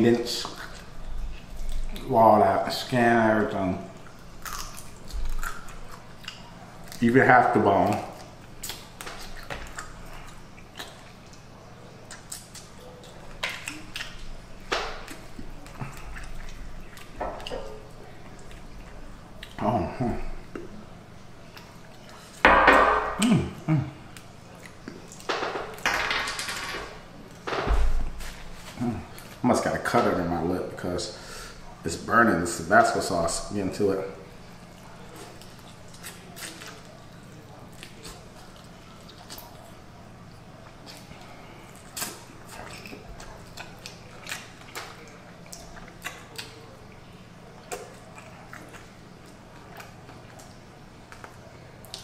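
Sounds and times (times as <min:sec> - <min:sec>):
chewing and crunching chicken wings: 0:03.5 - 0:20.8, 0:21.4 - 0:22.4, 0:32.8 - 0:52.0
eating clicks and smacks: 0:04.0 - 0:07.0, 0:07.8 - 0:19.6, 0:24.1 - 0:25.8, 0:34.8 - 0:52.0
low vocal grunt: 0:23.2 - 0:24.0.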